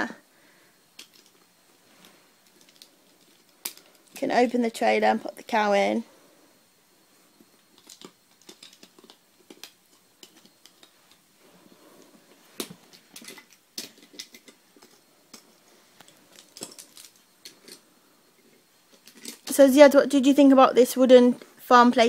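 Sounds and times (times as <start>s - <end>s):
wooden toy pieces clicking: 1.0s - 1.4s, 2.4s - 4.2s, 7.7s - 11.2s, 12.6s - 15.4s, 16.0s - 17.8s.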